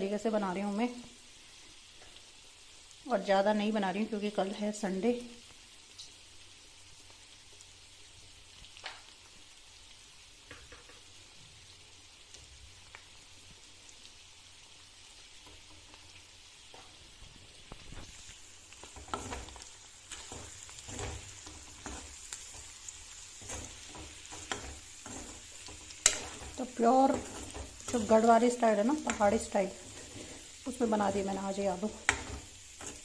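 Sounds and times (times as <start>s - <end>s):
potatoes sizzling in oil: 0.0s - 33.0s
steel ladle scraping pan: 23.4s - 28.3s, 29.0s - 31.3s.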